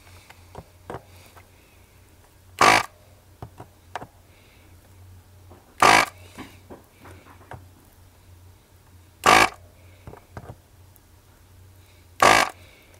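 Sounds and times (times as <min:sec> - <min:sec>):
desoldering pump buzzing: 0:02.2 - 0:04.1, 0:04.7 - 0:08.0, 0:08.8 - 0:12.9.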